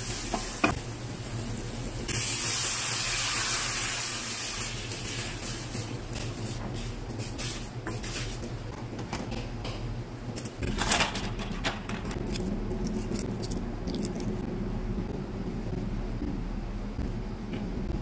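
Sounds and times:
steady low hum: 4.7s - 18.0s
eggshells cracking while peeled: 12.0s - 14.4s.

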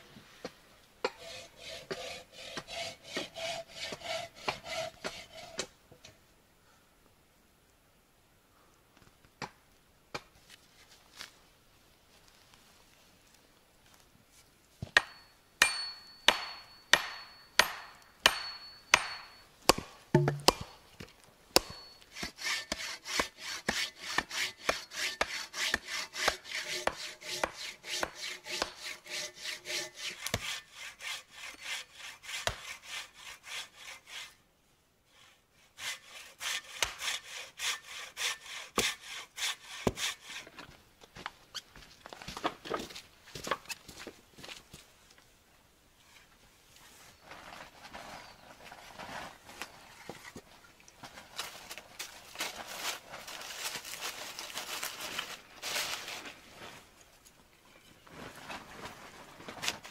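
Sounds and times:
hand saw cutting wood: 1.0s - 5.7s, 21.6s - 34.4s, 35.1s - 40.5s
hatchet striking wooden pole: 14.9s - 20.8s, 21.6s - 30.6s, 32.3s - 32.7s, 36.5s - 37.2s.

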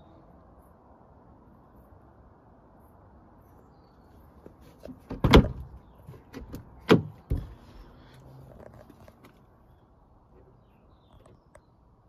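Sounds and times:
car door clicks and knocks: 4.9s - 7.6s
dull thud: 4.9s - 7.6s
car door clunks: 5.0s - 7.6s.

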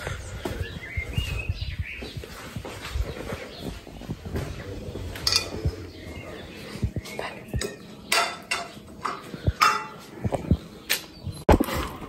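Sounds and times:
footsteps: 0.0s - 10.7s.

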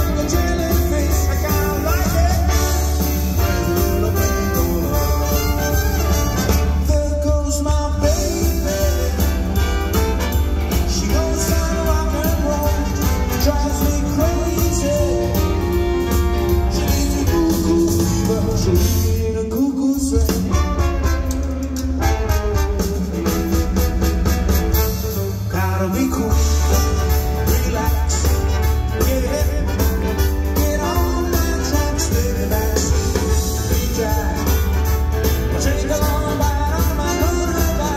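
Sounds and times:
swing band playing: 0.0s - 37.9s
person singing: 6.6s - 10.1s, 10.7s - 23.4s, 25.4s - 37.9s.

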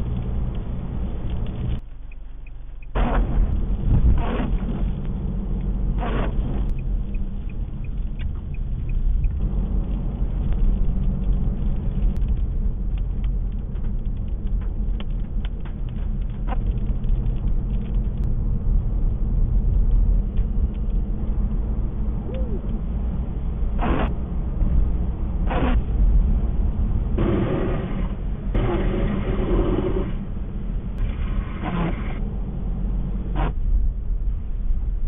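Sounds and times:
rain ticking on windshield: 0.0s - 21.5s
car driving on wet road: 0.0s - 35.0s.

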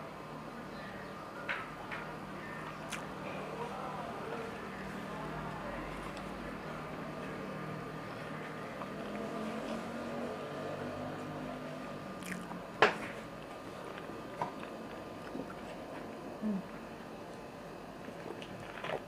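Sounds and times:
chewing and wet mouth noises: 2.9s - 3.1s, 12.2s - 12.6s, 13.4s - 17.4s, 18.0s - 19.0s.

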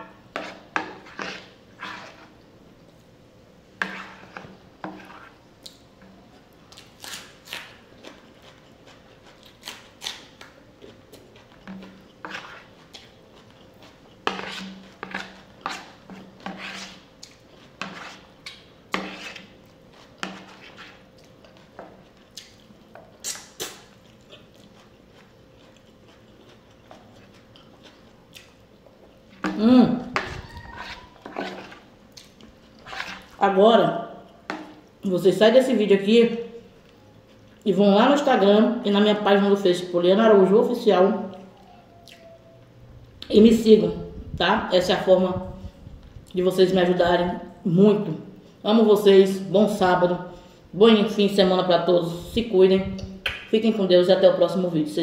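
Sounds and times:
spoon scraping on plate: 0.0s - 2.4s, 3.8s - 5.4s, 11.6s - 13.1s, 14.2s - 21.1s, 30.2s - 31.9s, 32.8s - 33.4s
chewing and mouth sounds: 21.1s - 29.5s, 30.4s - 33.4s.

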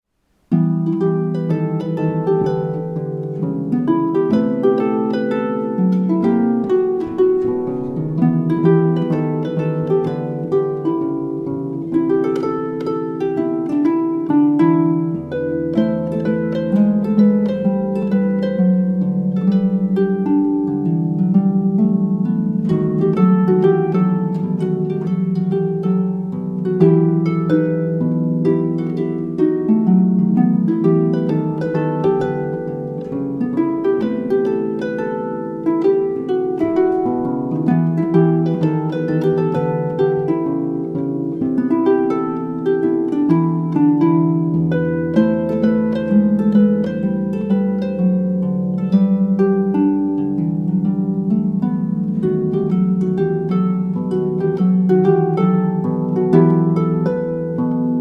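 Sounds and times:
harp playing jazzy tune: 0.1s - 58.0s.

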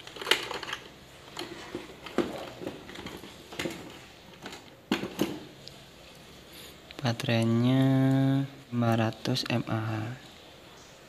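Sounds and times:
plastic toy truck clicks and knocks: 0.0s - 5.5s.

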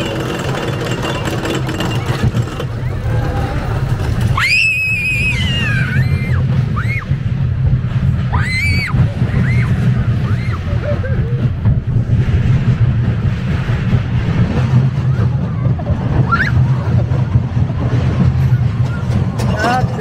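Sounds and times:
roller coaster rumbling on track: 0.0s - 20.0s
wind on microphone: 0.8s - 20.0s
child screaming: 4.4s - 7.0s, 8.3s - 10.6s.

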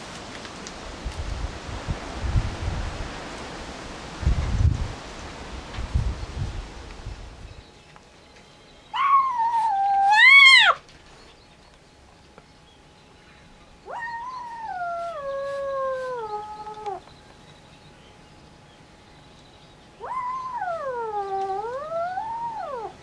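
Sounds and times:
cat yowling: 8.9s - 10.8s, 13.8s - 17.0s, 20.0s - 23.0s.

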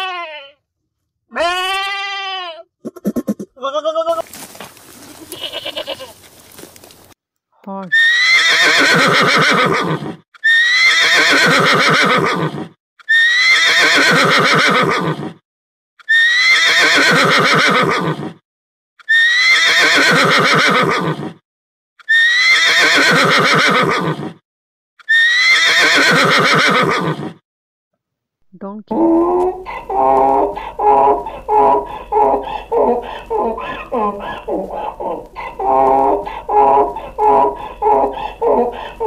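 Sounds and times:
horse whinnying: 5.1s - 6.2s, 7.9s - 15.4s, 16.1s - 18.4s, 19.1s - 21.4s, 22.1s - 24.4s, 25.1s - 27.4s, 28.9s - 39.0s.

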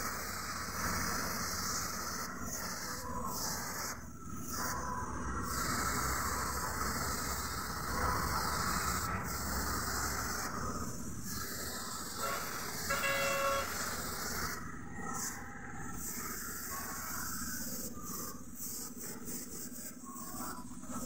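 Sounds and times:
spray gun hissing: 11.3s - 14.6s
short horn toot: 12.2s - 13.7s.

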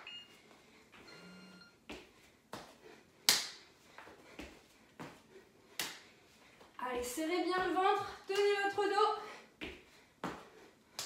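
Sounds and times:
hands and feet slapping on mat: 1.9s - 6.1s, 9.6s - 11.0s.

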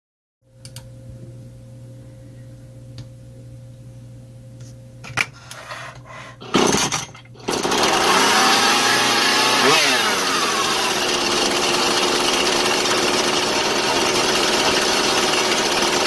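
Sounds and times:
faint low hum: 0.5s - 6.4s
chainsaw pull cord burst: 6.5s - 16.0s
chainsaw engine running: 7.4s - 16.0s.

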